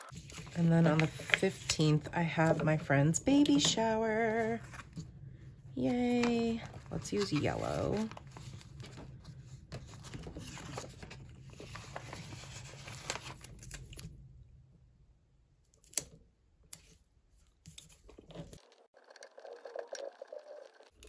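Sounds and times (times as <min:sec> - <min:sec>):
paper rustling and clicking: 0:00.0 - 0:02.6, 0:06.0 - 0:14.1.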